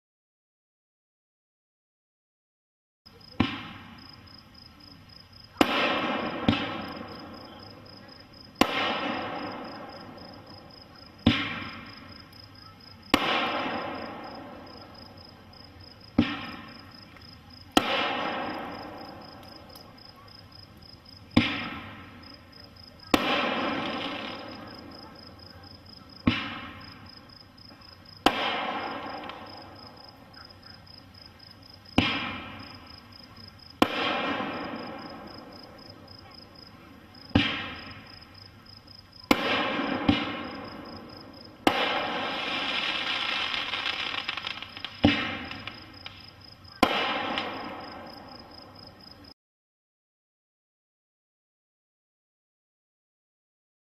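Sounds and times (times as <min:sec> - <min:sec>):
fireworks bangs: 0:03.2 - 0:04.6, 0:05.4 - 0:49.1
high insect trill: 0:42.2 - 0:46.8.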